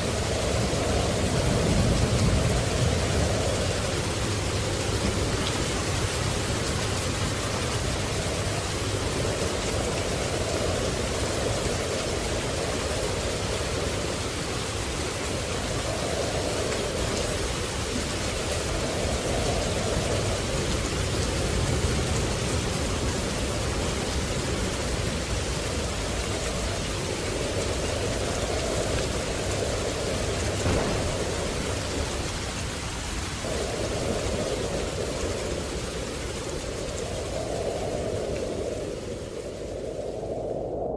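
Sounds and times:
low thunder rumble: 0.0 - 40.9
steady rain: 0.0 - 40.9
sharp thunder crack: 30.6 - 33.2.

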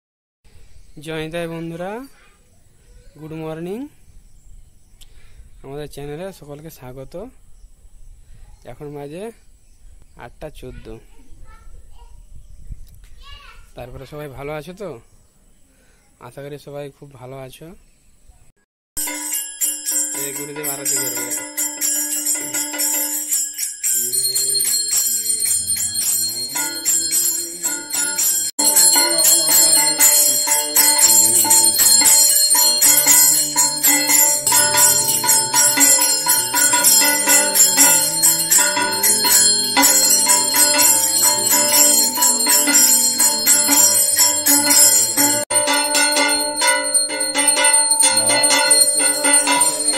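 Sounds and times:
hand bell ringing: 19.0 - 49.9
person singing melody: 22.2 - 23.3, 24.0 - 49.9.

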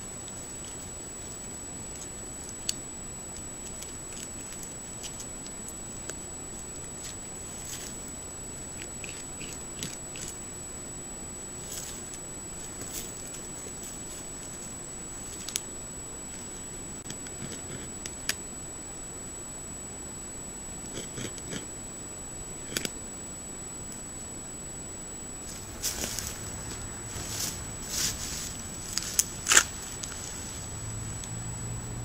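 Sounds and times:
steady hiss: 0.0 - 32.0
beaver gnawing wood: 1.9 - 10.4, 25.6 - 30.5.

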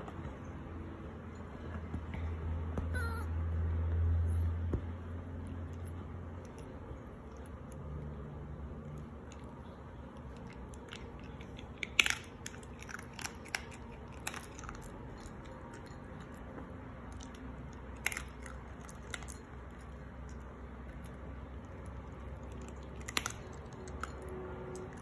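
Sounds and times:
dog crunching dry kibble: 8.8 - 25.0.

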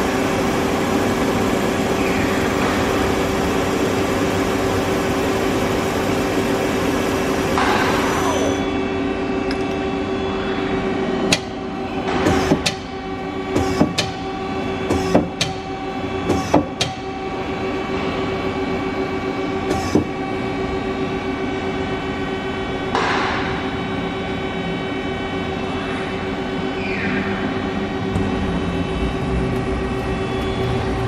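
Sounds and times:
machine hum with constant tone: 0.0 - 31.0.

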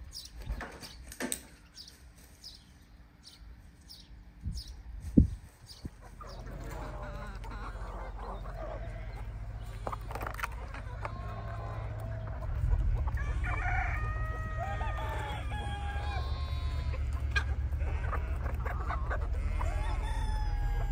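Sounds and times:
chickens clucking: 0.0 - 20.9
roosters crowing: 6.0 - 20.9
low rumble: 6.4 - 20.9.

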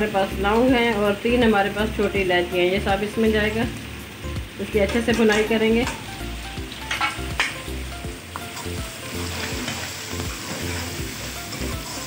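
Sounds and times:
onions sizzling in hot oil: 0.0 - 12.0
ladle clinking on pan: 6.8 - 7.6
ladle scraping a pan: 8.6 - 12.0.

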